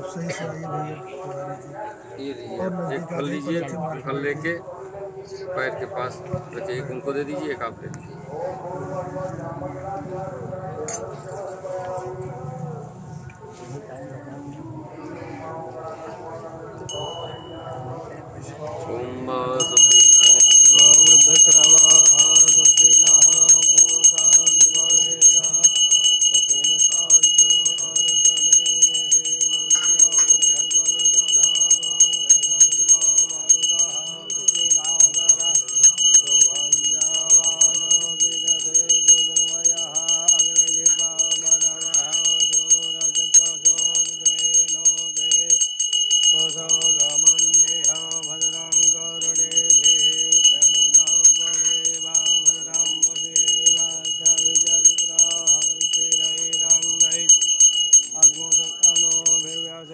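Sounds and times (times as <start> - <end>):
people singing: 8.0 - 59.9
small bell ringing fast: 16.8 - 18.3, 19.6 - 59.9.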